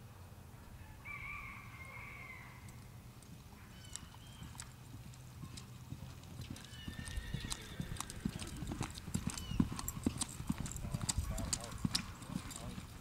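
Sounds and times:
hoofbeats on soft dirt: 0:02.7 - 0:13.0.

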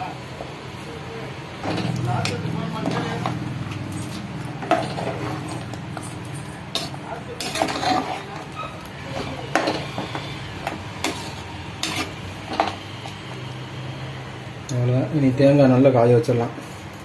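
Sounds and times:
ladle stirring thick curry: 0:02.0 - 0:13.7.

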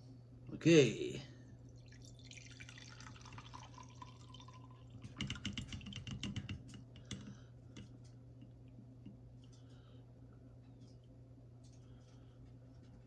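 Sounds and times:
liquid trickling through strainer: 0:01.8 - 0:06.8.

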